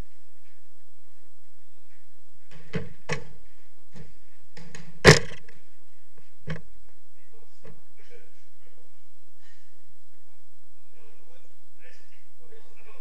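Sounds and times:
football thudding off walls: 0:02.5 - 0:05.5.

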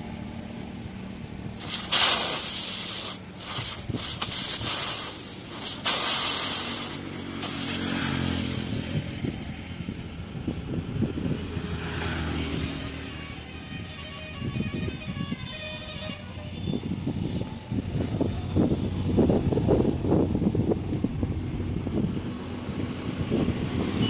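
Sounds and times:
air hissing from a tyre: 0:01.5 - 0:10.5.

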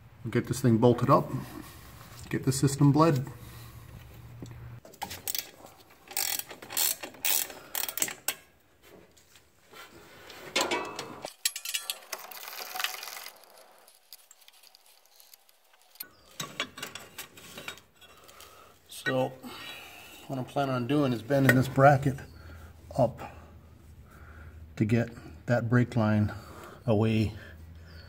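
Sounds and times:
ratchet wrench clicking: 0:06.1 - 0:08.4.

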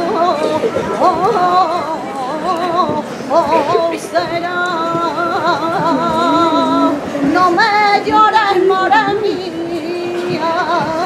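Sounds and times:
woman singing unaccompanied: 0:00.0 - 0:11.0.

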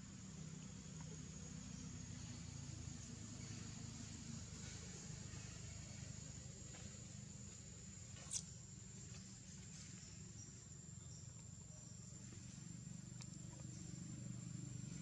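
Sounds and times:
faint ticks: 0:11.1 - 0:14.1.

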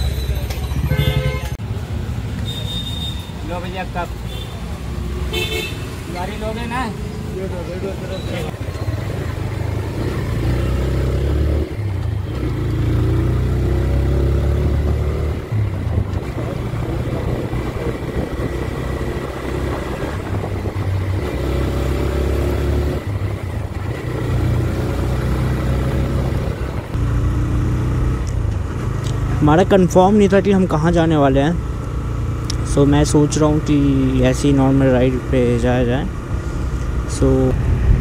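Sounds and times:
motorcycle engine accelerating: 0:08.5 - 0:38.0.

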